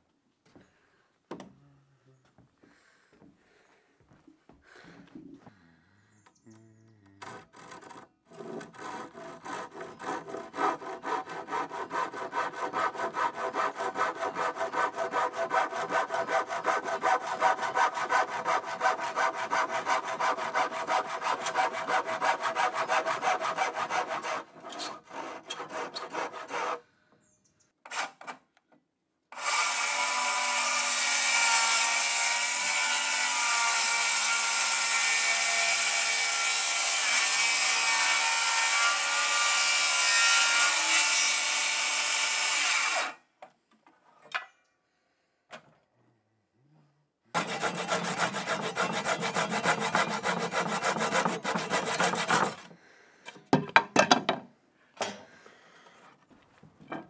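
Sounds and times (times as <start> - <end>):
hand saw cutting wood: 7.2 - 26.8, 29.3 - 43.2, 47.3 - 52.8.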